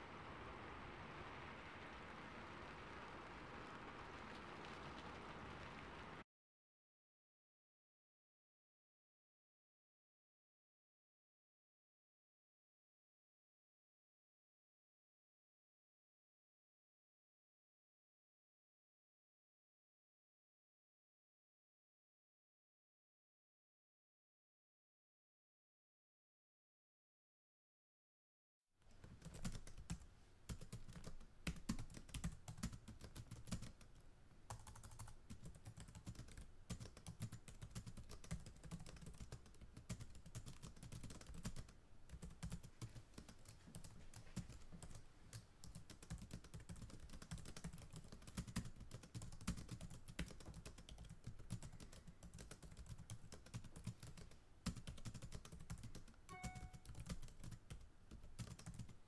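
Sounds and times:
faint tone: 56.3 - 57.0.

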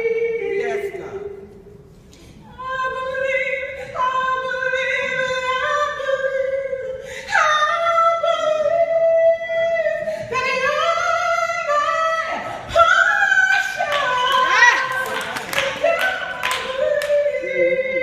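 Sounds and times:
woman singing gospel: 0.0 - 1.5, 2.4 - 18.0.

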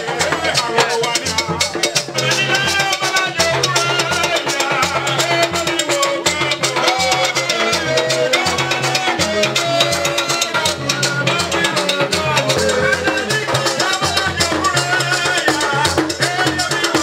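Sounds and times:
drums and percussion: 0.0 - 17.0
person singing into a microphone: 0.0 - 17.0
repeating bass line: 8.2 - 13.8.

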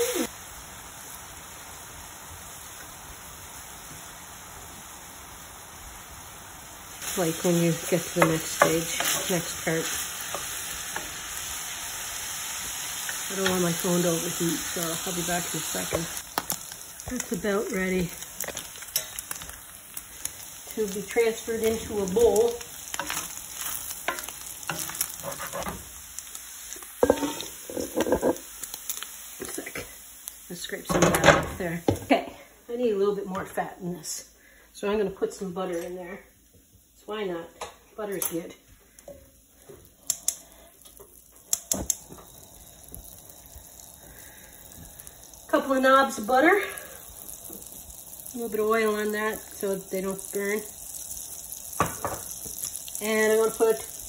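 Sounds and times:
sausage sizzling in a skillet: 0.0 - 54.0
spatula scraping skillet: 7.0 - 19.5, 20.7 - 26.0, 26.7 - 29.9.

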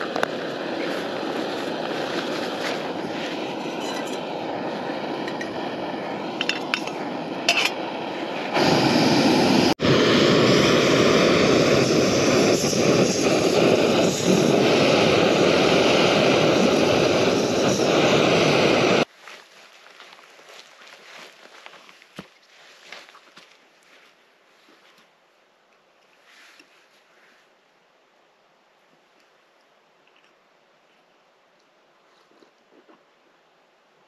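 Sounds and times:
gas stove hissing: 0.0 - 19.1.

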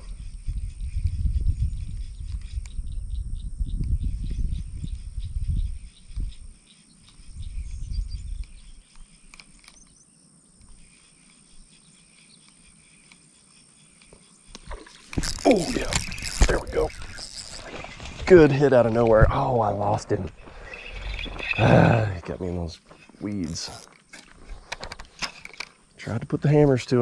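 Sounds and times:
frogs calling: 0.0 - 26.2
insect drone: 0.0 - 27.0.

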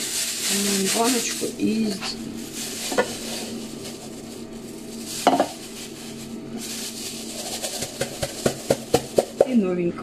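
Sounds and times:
utensil scraping coffee grounds: 0.0 - 9.5.

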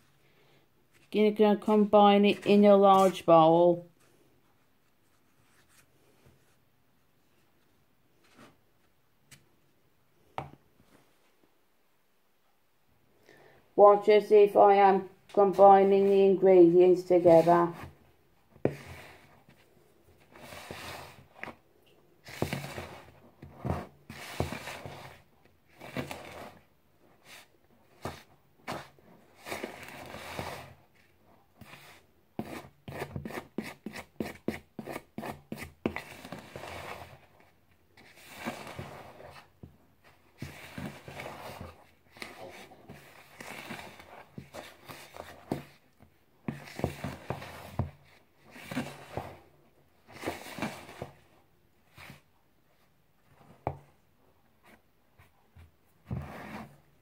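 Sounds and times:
utensil scraping mixing bowl: 22.2 - 25.2, 38.0 - 39.5.

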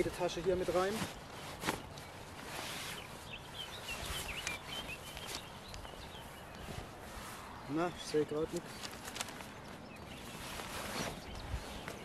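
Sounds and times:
fabric rustling: 0.0 - 7.5, 10.2 - 12.0
bird chirping: 1.0 - 12.0.

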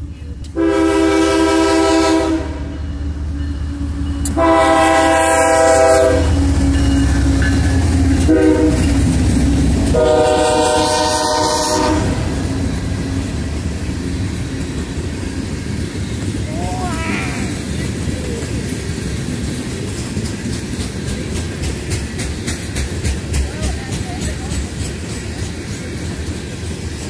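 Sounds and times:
locomotive engine rumble: 0.0 - 27.0
train horn blasts: 0.6 - 2.8, 4.2 - 6.4, 8.2 - 8.9, 9.9 - 12.4.

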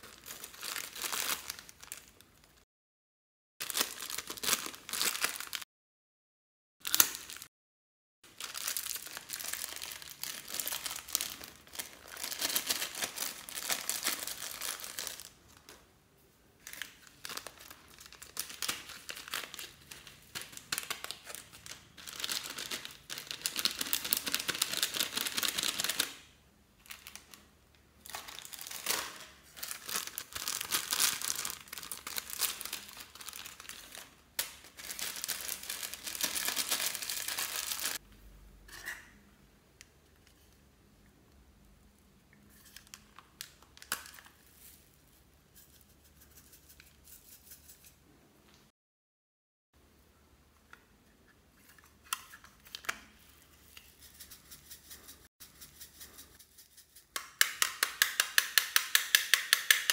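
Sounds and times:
plastic bags crinkling: 0.0 - 2.4, 3.6 - 5.6, 6.8 - 7.5, 8.3 - 15.7, 16.6 - 26.2, 26.8 - 27.4, 28.0 - 38.0.

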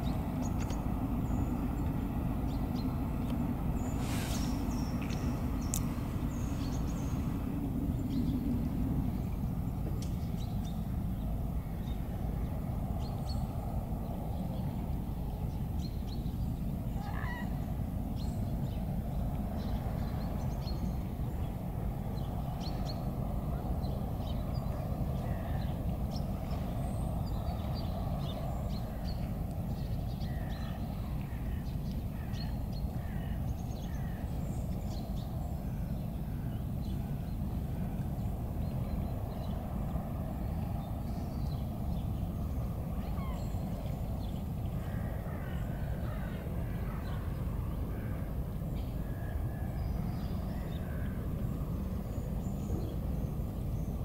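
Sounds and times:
birds calling: 0.0 - 11.2, 16.9 - 17.7, 23.6 - 54.0
steady low rumble: 0.0 - 54.0.

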